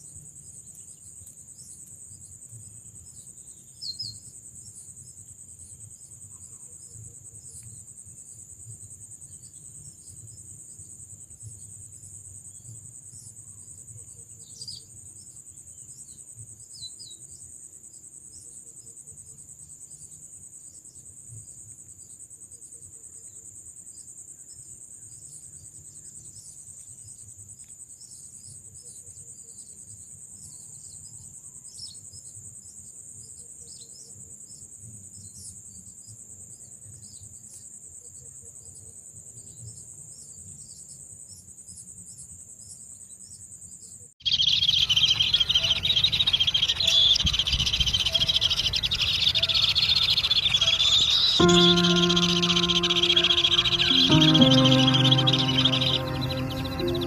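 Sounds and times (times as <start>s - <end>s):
bird chirps: 44.2s - 57.0s
insects trilling: 44.2s - 57.0s.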